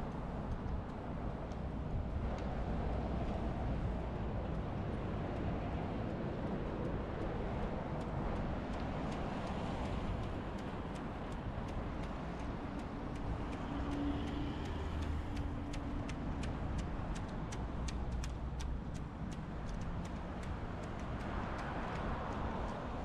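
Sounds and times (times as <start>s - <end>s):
street traffic rumble: 0.0s - 23.0s
sharp ticks: 6.0s - 23.0s
vehicle passing: 12.0s - 18.7s.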